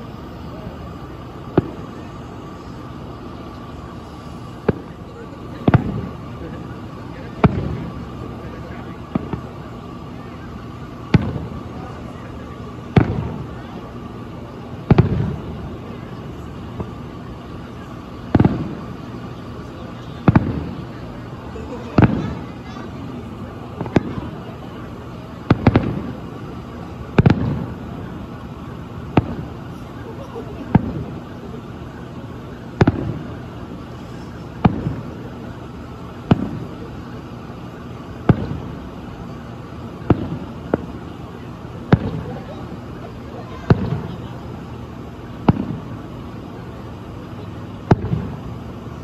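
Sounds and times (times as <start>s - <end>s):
steady background hiss: 0.0s - 49.0s
distant firework shells bursting: 1.2s - 2.0s, 2.9s - 10.1s, 10.9s - 20.9s, 25.4s - 30.0s, 32.8s - 41.1s, 41.8s - 42.4s, 43.7s - 44.2s, 45.4s - 46.3s, 47.8s - 48.7s
distant firework booms: 5.6s - 6.2s, 7.3s - 8.1s, 11.0s - 11.6s, 12.9s - 13.5s, 14.8s - 15.6s, 18.3s - 19.0s, 25.5s - 26.2s, 27.2s - 28.2s, 32.8s - 33.4s, 34.5s - 35.1s, 36.2s - 36.7s, 38.2s - 38.8s, 41.9s - 42.4s, 43.7s - 44.2s, 45.4s - 45.9s, 47.8s - 48.4s.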